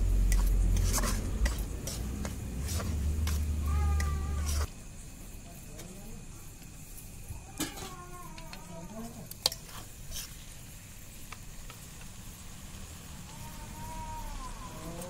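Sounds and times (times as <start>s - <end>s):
light sizzle of frying: 0.0s - 15.0s
metal spatula scraping a pan: 0.3s - 4.7s.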